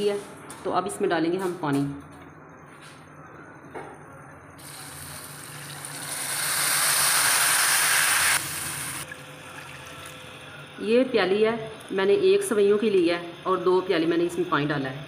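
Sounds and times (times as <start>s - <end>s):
water hissing in hot pan: 4.6s - 9.1s.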